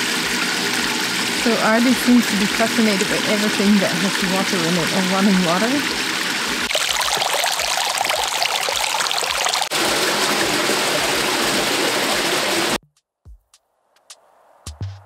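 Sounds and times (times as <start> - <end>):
water trickling over stone: 1.1 - 9.7.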